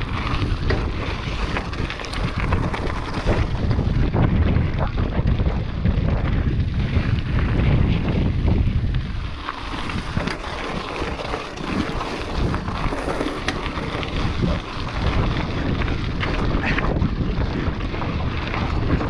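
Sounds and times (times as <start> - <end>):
tyres crunching on gravel: 0.0 - 4.2, 6.9 - 19.0
heavy low rumble: 0.0 - 11.1, 12.2 - 19.0
bike rattling over stones: 0.0 - 19.0
wind buffeting microphone: 0.0 - 19.0.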